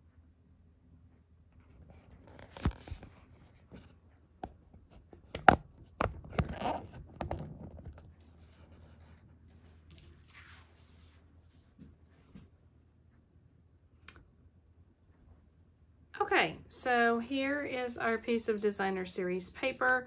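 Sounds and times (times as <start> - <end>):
paper rustling: 9.6 - 11.7.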